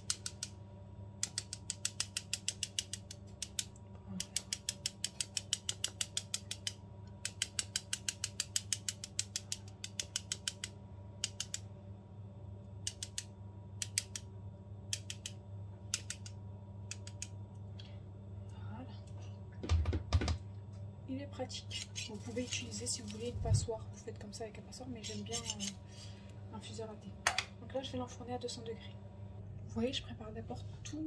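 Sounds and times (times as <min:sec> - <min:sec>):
mesh infuser ball clicking: 0:00.0 - 0:00.6, 0:01.2 - 0:11.7, 0:12.8 - 0:14.3, 0:14.9 - 0:17.7.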